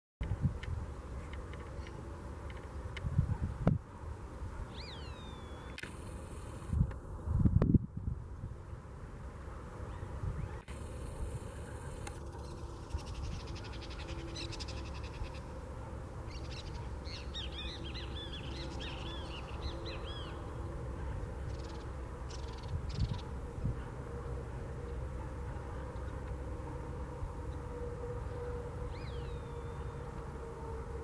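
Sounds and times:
ibises calling: 4.7s - 5.8s.

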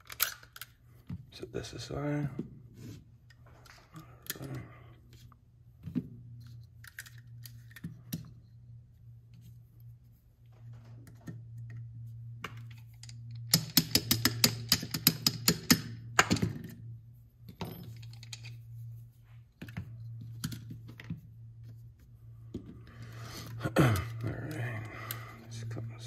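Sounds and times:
pistol parts clicking: 0.0s - 0.8s, 6.6s - 8.3s, 12.6s - 16.6s, 17.7s - 18.6s
steady low hum: 0.0s - 26.0s.

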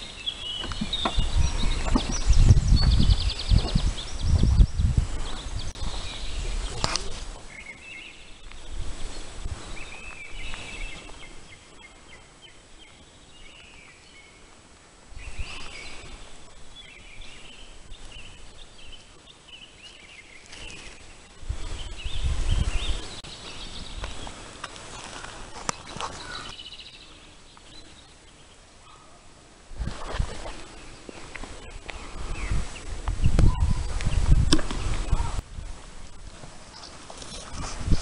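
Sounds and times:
wind rumble on microphone: 0.0s - 12.1s, 15.1s - 19.1s, 20.8s - 24.5s, 29.6s - 38.0s
birds singing: 0.0s - 14.6s, 15.2s - 29.3s, 30.2s - 35.8s, 36.6s - 38.0s.

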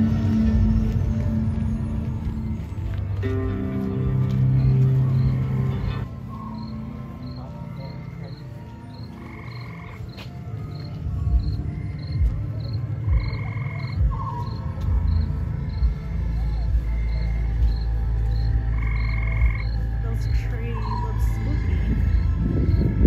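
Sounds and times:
deep rumble: 0.0s - 23.0s
insects chirping: 4.4s - 23.0s
frog trills: 9.0s - 10.1s, 11.8s - 15.2s, 18.7s - 19.8s.

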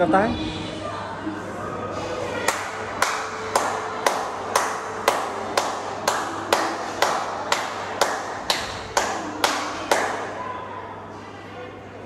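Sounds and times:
hands clapping in a hall: 2.4s - 10.4s.

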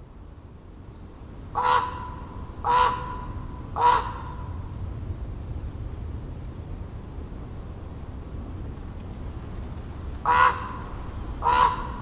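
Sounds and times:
distant ocean rumble: 0.0s - 12.0s
raven croaking: 1.5s - 4.5s, 10.2s - 12.0s.

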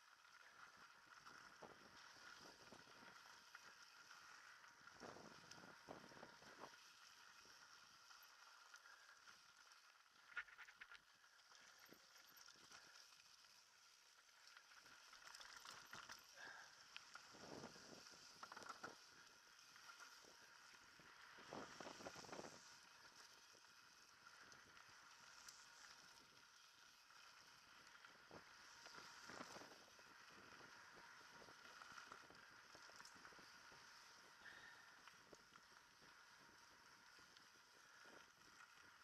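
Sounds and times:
mountain bike rattling on dirt trail: 0.0s - 39.0s.

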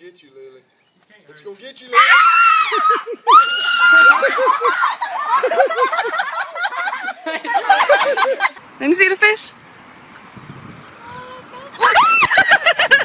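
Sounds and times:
girl screaming: 1.9s - 5.0s, 11.0s - 12.3s
girl crying out: 2.0s - 4.3s
girl laughing: 2.6s - 8.6s, 11.0s - 13.0s.

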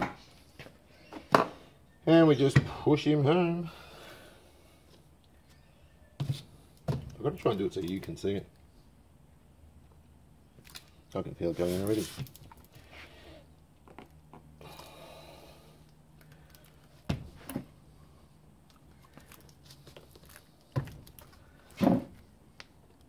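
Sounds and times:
soft rubbing and handling noise: 10.8s - 14.5s, 16.3s - 22.4s
faint steady hum: 12.2s - 23.0s.

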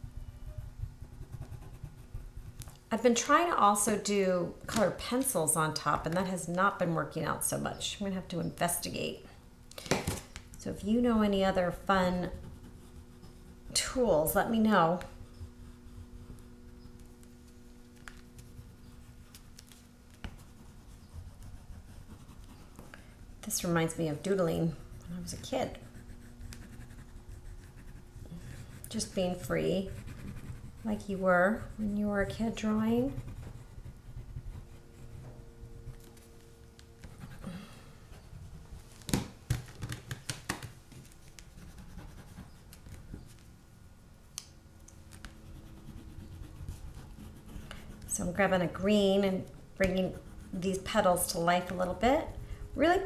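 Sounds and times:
low steady hum: 0.0s - 53.0s
pastel scratching on paper: 0.4s - 2.8s, 12.2s - 13.8s, 14.4s - 22.8s, 23.8s - 36.3s, 41.0s - 43.0s, 45.1s - 48.8s, 49.5s - 53.0s.

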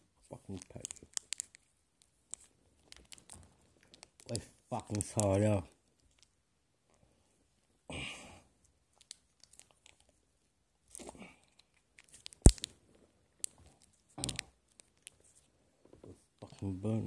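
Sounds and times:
packet rustling and tearing: 0.5s - 6.3s, 9.0s - 10.2s, 10.9s - 15.5s.

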